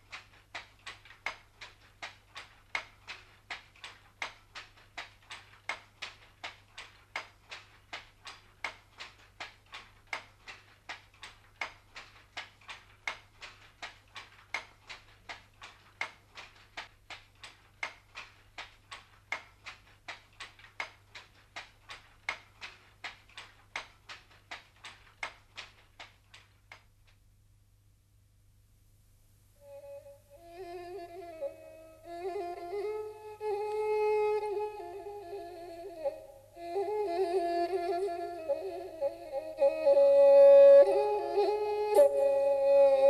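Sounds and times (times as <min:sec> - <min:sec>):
handloom rhythmic clacking: 0:00.0 - 0:26.8.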